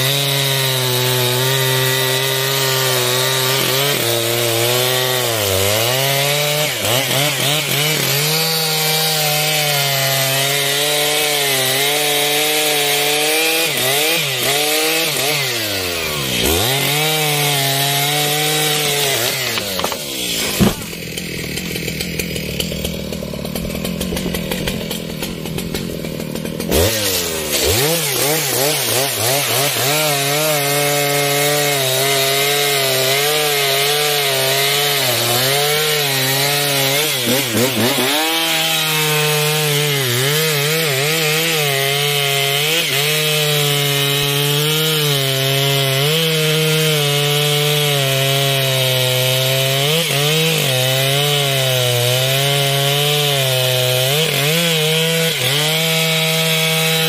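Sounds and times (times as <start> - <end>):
chainsaw cutting wood: 0.0 - 57.0
sharp crack: 19.3 - 21.7.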